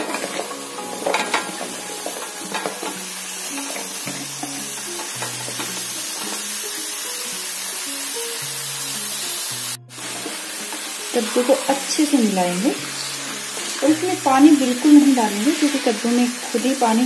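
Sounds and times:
pumpkin chunks clattering into pan: 0:00.0 - 0:03.0
steady sizzle of hot oil: 0:00.0 - 0:17.0.

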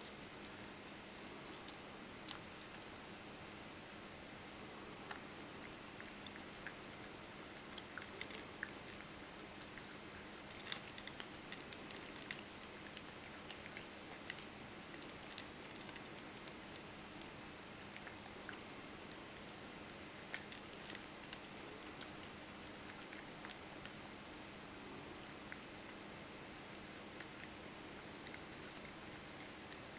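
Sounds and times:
cat crunching dry kibble: 0:05.0 - 0:24.0, 0:25.2 - 0:29.9.

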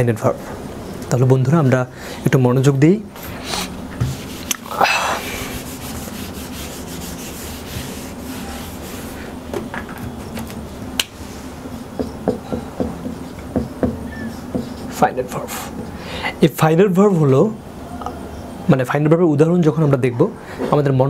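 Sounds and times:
eraser rubbing whiteboard: 0:03.2 - 0:04.6, 0:05.2 - 0:09.4, 0:13.0 - 0:15.7
marker writing on whiteboard: 0:05.3 - 0:09.2, 0:11.7 - 0:15.9.

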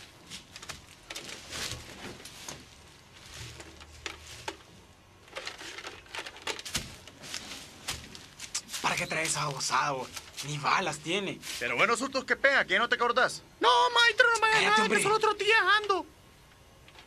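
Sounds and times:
dry leaves and twigs rustling: 0:00.0 - 0:12.1.

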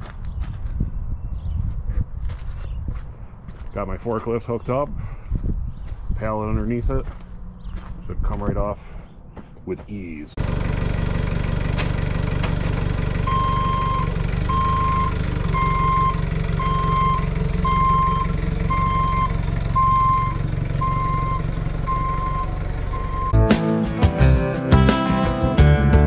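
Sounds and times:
forklift engine running: 0:10.4 - 0:23.5
backup alarm beeping: 0:13.2 - 0:23.4.

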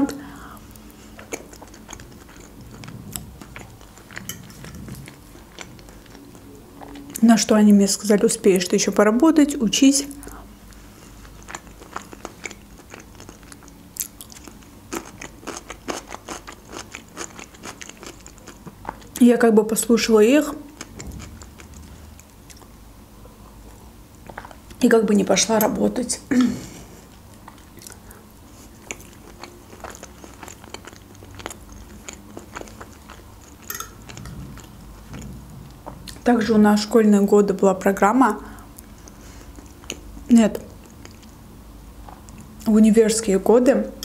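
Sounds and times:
person chewing with wet smacks: 0:00.7 - 0:07.2, 0:10.2 - 0:19.2, 0:20.7 - 0:22.7, 0:27.1 - 0:36.3, 0:38.8 - 0:41.4.

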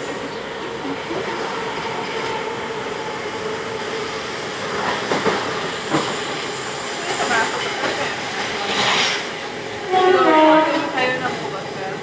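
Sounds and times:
passing train: 0:00.0 - 0:12.0
train wheels rumbling on rail: 0:00.0 - 0:12.0.

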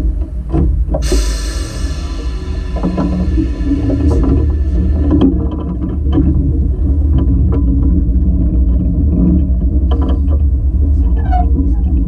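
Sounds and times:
short squeal: 0:01.0 - 0:06.1.

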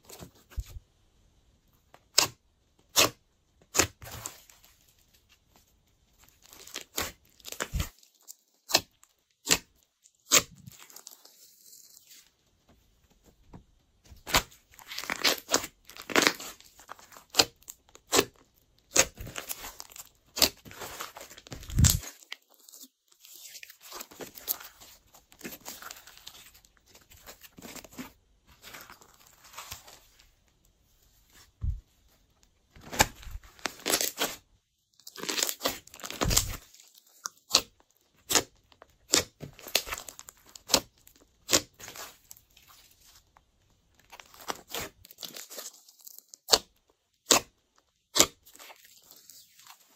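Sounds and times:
slime crackling and popping: 0:14.2 - 0:26.5, 0:35.0 - 0:42.4.

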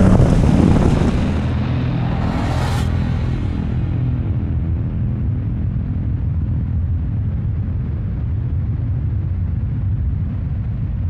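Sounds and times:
deep rumble: 0:00.0 - 0:11.0.

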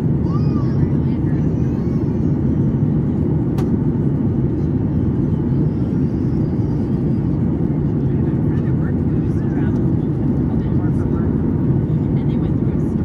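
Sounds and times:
airplane cabin engine roar: 0:00.0 - 0:13.0.

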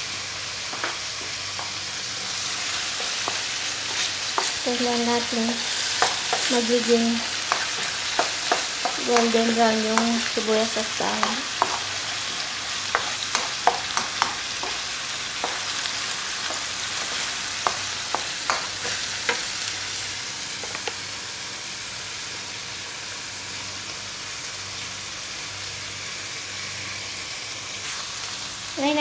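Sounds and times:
food sizzling in oil: 0:00.0 - 0:29.0
wooden spatula scraping pan: 0:02.2 - 0:06.5.

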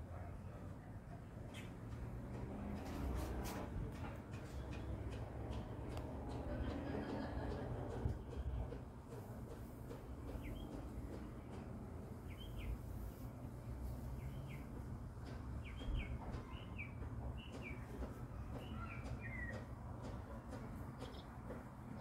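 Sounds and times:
bird chirping: 0:10.3 - 0:11.2, 0:12.2 - 0:13.1, 0:14.1 - 0:19.7.

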